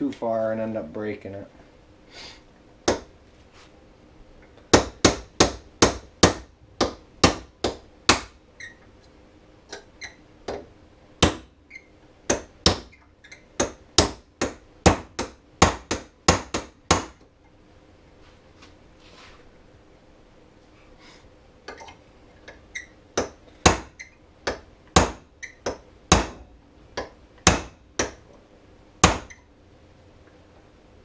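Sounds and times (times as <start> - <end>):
hammer striking metal punch: 23.2 - 28.2, 29.0 - 29.4.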